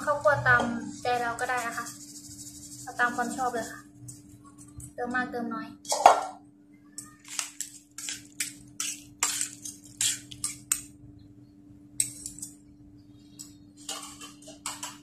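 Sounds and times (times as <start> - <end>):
metal spoons scraping a pan: 0.0 - 4.8, 7.3 - 10.9, 12.0 - 12.6, 13.3 - 15.0.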